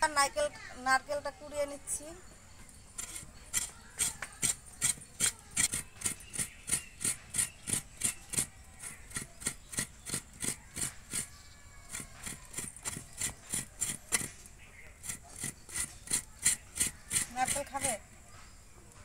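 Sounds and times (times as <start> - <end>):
coconut rasping on scraper blade: 3.0 - 18.2.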